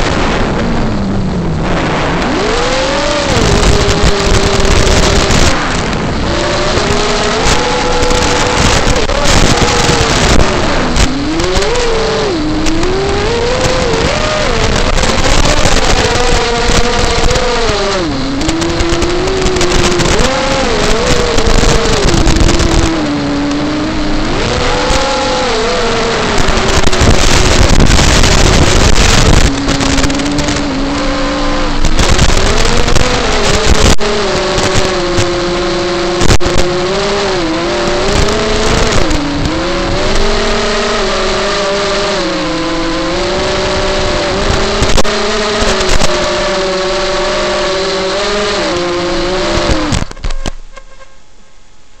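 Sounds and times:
drone motors whining: 0.0s - 50.9s.

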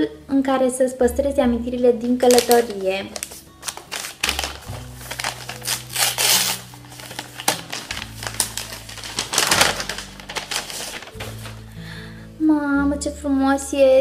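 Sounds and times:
background music with low notes: 0.0s - 14.0s
packaging rustling and crinkling: 2.2s - 11.7s.

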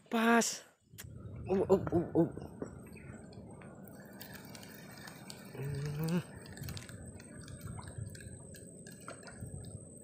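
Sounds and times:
flowing river: 3.3s - 10.0s.

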